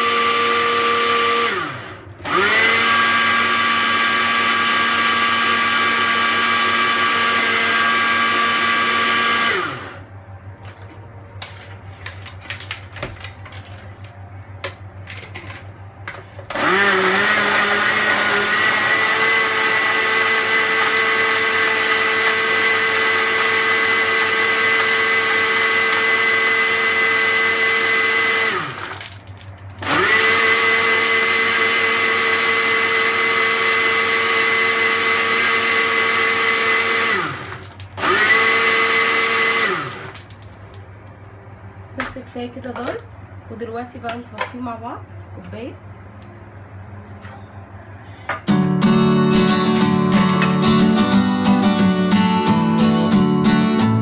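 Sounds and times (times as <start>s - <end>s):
blender motor whining: 0.0s - 10.0s, 16.5s - 29.2s, 29.8s - 40.3s.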